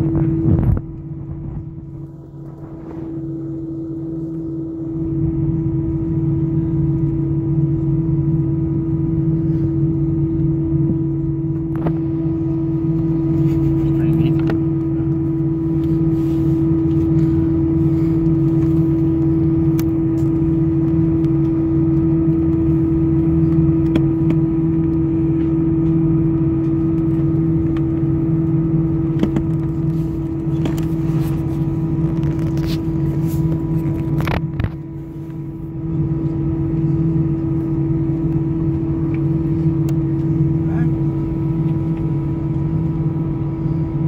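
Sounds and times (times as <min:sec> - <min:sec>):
jet airliner droning hum: 0:00.0 - 0:44.0.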